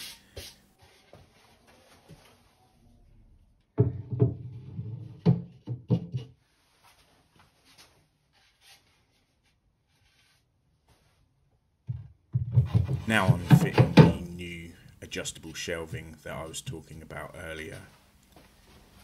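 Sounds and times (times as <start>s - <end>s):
wooden knocks and thumps: 3.8s - 6.4s, 11.8s - 14.3s.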